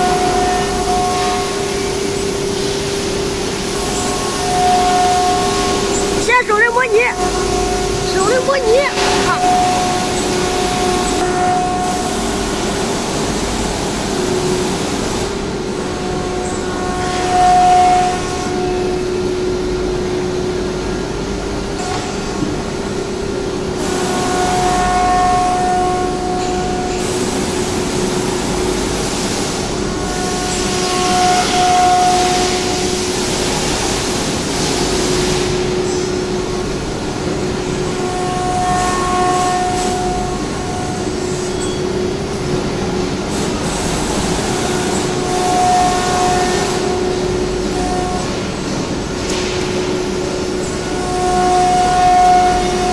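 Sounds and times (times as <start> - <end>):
cnc router machine hum and whine: 0.0 - 52.9
high spindle tone: 3.9 - 11.2.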